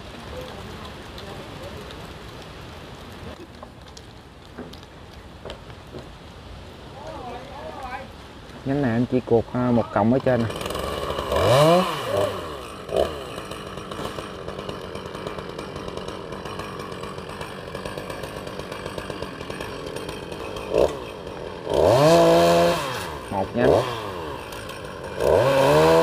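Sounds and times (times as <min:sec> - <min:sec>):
chainsaw revving and idling: 0:09.5 - 0:26.0.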